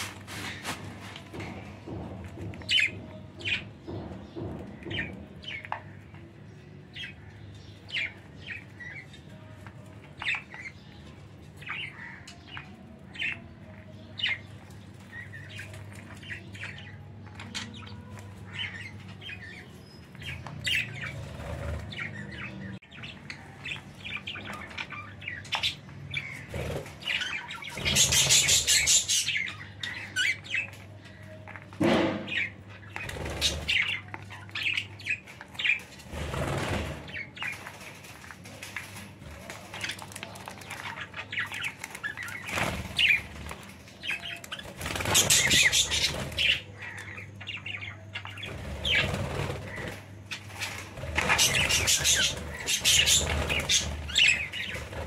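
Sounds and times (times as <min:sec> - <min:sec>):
budgerigars chirping: 0:20.3 - 0:30.8, 0:39.9 - 0:55.0
wings flapping: 0:35.9 - 0:46.6, 0:48.4 - 0:55.0.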